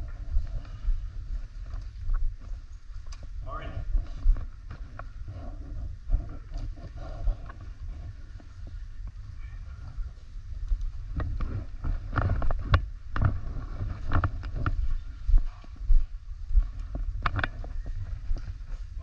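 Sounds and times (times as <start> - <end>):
low rumble on microphone: 0.0 - 19.0.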